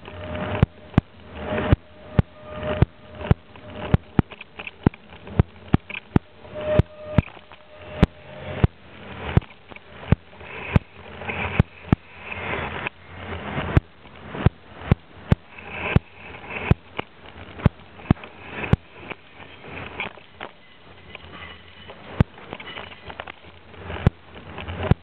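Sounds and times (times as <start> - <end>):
freight train rumbling past: 0.0 - 16.6
train clicks and knocks: 0.0 - 25.0.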